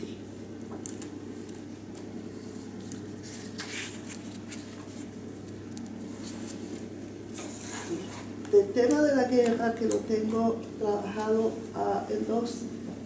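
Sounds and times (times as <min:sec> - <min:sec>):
low room hum: 0:00.0 - 0:13.0
book pages rustling: 0:00.8 - 0:10.4.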